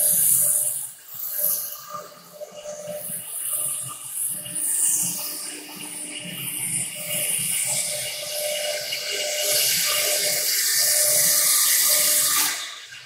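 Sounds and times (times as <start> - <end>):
router spindle whine: 0.0 - 13.0.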